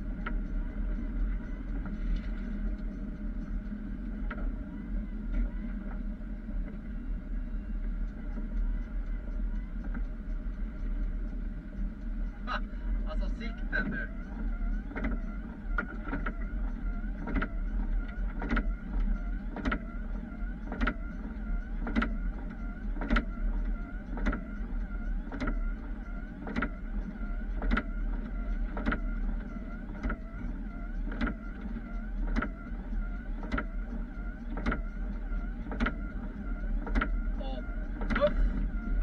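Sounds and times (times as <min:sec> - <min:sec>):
truck engine drone: 0:00.0 - 0:39.0
wiper motor whining: 0:00.0 - 0:39.0
wiper blades knocking: 0:12.3 - 0:39.0.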